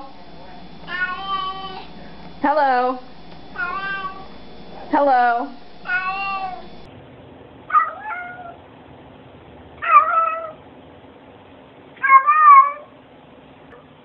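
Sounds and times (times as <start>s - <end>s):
cat meowing: 0.9s - 1.9s, 3.6s - 4.3s, 5.8s - 6.7s, 7.7s - 8.6s, 9.8s - 10.6s, 12.0s - 12.9s.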